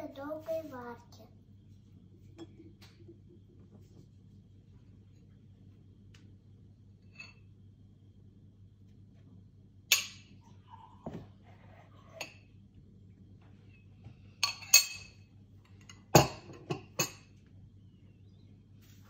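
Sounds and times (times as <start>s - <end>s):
glassware and dishes clinking: 14.4s - 17.3s.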